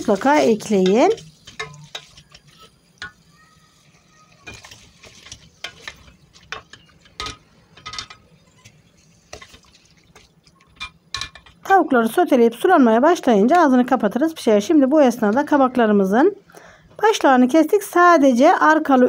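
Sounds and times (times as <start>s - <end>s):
wooden spoon scraping metal pot: 0.0s - 3.2s, 4.4s - 11.6s.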